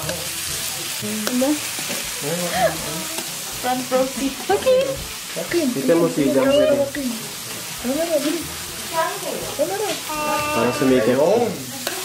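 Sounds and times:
meat sizzling on grill plate: 0.0s - 12.0s
metal tongs stirring meat: 1.2s - 2.2s, 9.7s - 12.0s.

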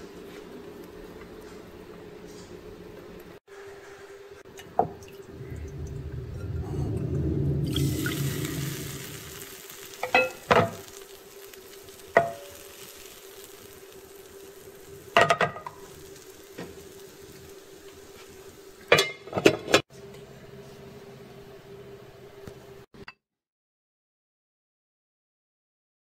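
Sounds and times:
batter sizzling in a pan: 7.7s - 19.4s.

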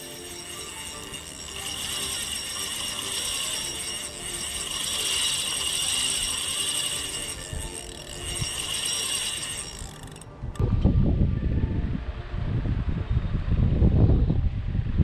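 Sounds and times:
fishing reel whirring: 0.0s - 10.6s.

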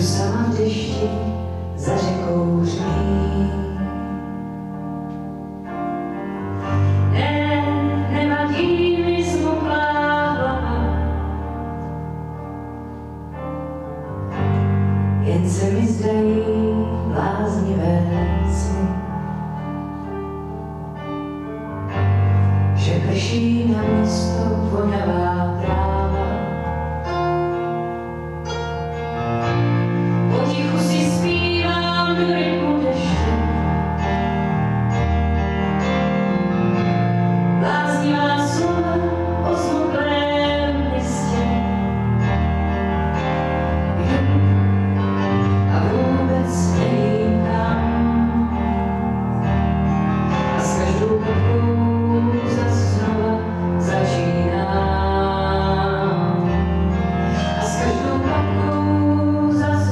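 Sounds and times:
woman singing into microphone: 0.0s - 4.4s, 7.1s - 11.6s, 15.2s - 19.4s, 22.8s - 26.7s, 30.3s - 34.0s, 37.6s - 41.9s, 45.6s - 49.0s, 50.6s - 56.8s, 57.6s - 59.9s
keyboard piano: 0.0s - 59.9s.

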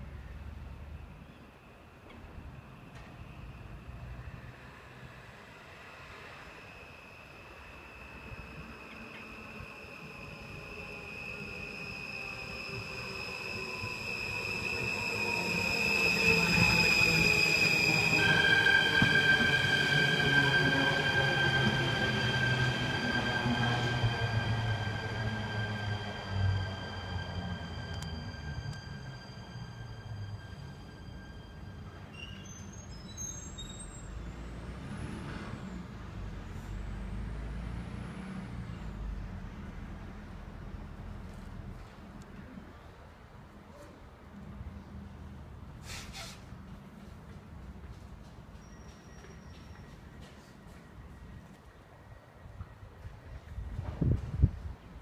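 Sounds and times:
electric train whine: 0.6s - 40.0s.

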